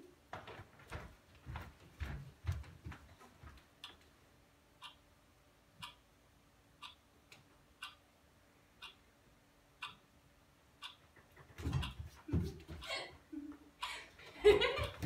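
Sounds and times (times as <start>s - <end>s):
faint clock ticking: 3.4s - 15.0s.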